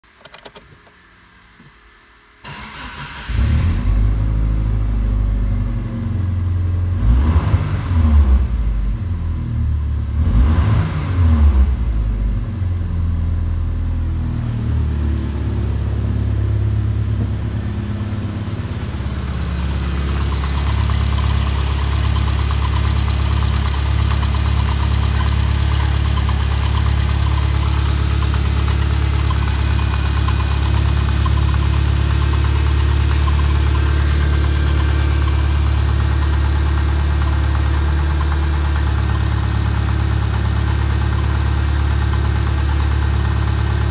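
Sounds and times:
car engine cranking and starting: 0.1 - 1.0, 2.4 - 4.2, 16.7 - 43.9
engine revving: 6.9 - 8.8, 10.1 - 11.9
engine idling: 15.2 - 43.9.

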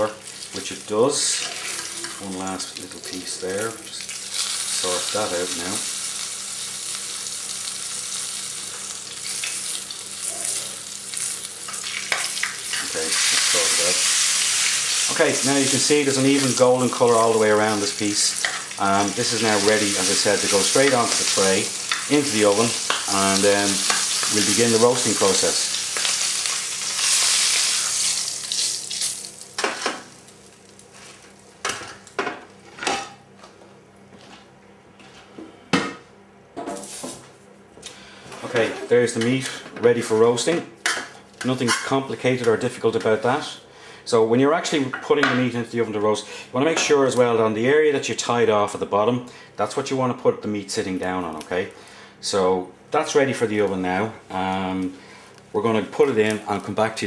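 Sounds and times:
meat sizzling in frying pan: 0.0 - 31.2.

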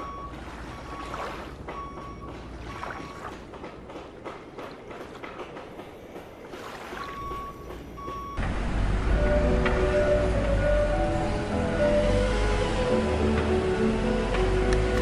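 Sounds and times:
vehicle reversing alarm beeping: 0.0 - 3.4, 7.1 - 12.8.

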